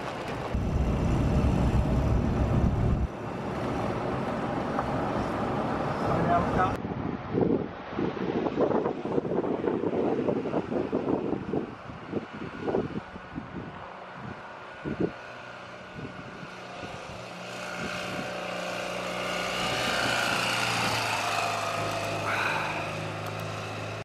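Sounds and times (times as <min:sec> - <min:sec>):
motorcycle engine passing by: 0:14.9 - 0:24.0.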